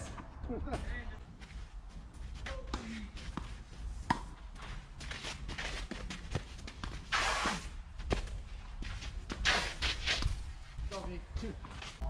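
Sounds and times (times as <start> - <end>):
players' footsteps: 0.0 - 12.0
shoe scuffing on court: 1.4 - 12.0
tennis ball struck and bouncing: 4.0 - 4.4.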